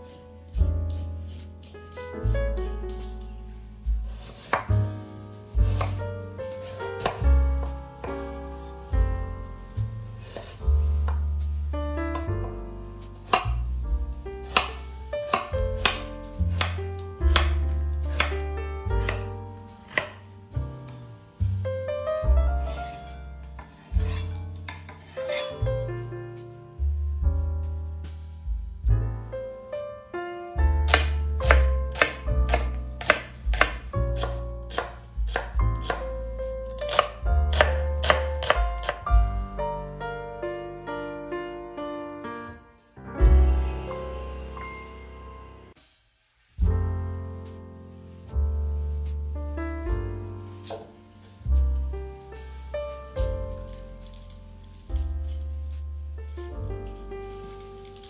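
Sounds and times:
gentle piano music: 0:00.0 - 0:45.8, 0:46.6 - 0:58.0
knife chopping on wooden board: 0:05.6 - 0:06.0, 0:07.0 - 0:08.2, 0:13.3 - 0:13.6, 0:14.5 - 0:18.4, 0:19.0 - 0:19.3, 0:19.9 - 0:20.2, 0:23.6 - 0:25.6, 0:30.9 - 0:36.1, 0:36.7 - 0:39.0, 0:50.6 - 0:51.0.

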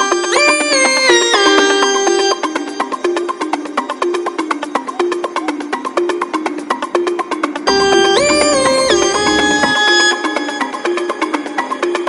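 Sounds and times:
plucked percussive rhythm: 0:07.6 - 0:11.3
low bass: 0:07.7 - 0:10.5
held synth note sliding in pitch: 0:07.7 - 0:10.9.

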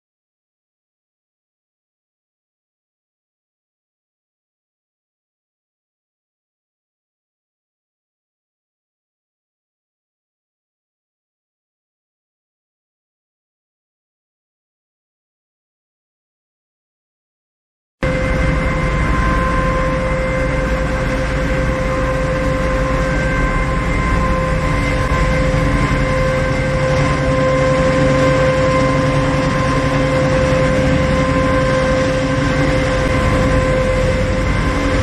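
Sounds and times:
motor whine: 0:18.0 - 0:35.0
production line machinery running: 0:18.1 - 0:35.0.

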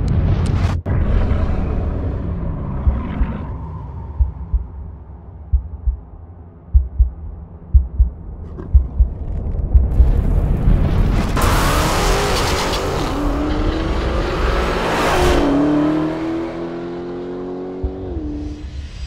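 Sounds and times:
car engine accelerating hard: 0:11.4 - 0:18.6.

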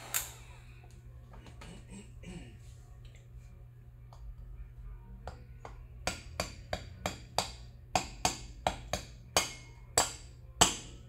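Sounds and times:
wrench striking metal hub: 0:06.0 - 0:11.0.

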